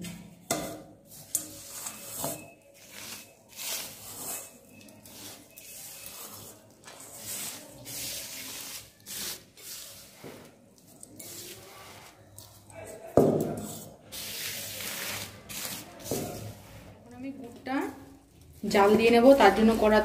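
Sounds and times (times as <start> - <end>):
hand sweeping gritty powder: 5.1 - 10.5.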